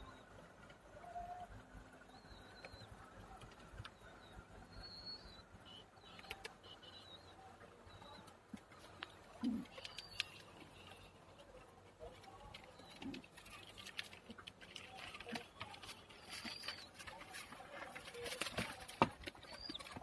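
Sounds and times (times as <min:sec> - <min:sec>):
pigeon cooing: 0:08.0 - 0:20.0
pigeon feet scratching on boards: 0:12.2 - 0:20.0.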